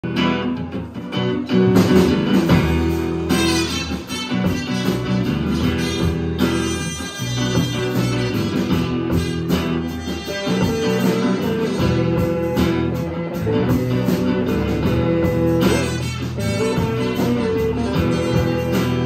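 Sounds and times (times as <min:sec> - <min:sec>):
bass guitar: 0:00.0 - 0:19.0
drum kit steady beat: 0:00.0 - 0:19.0
electric guitars: 0:00.0 - 0:19.0
trumpet holding long notes: 0:03.3 - 0:13.4, 0:15.3 - 0:19.0.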